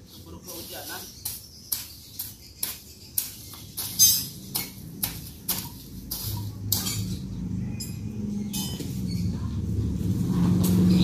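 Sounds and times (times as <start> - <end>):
scratchy strokes on dirt: 0.0 - 4.1, 5.0 - 6.9.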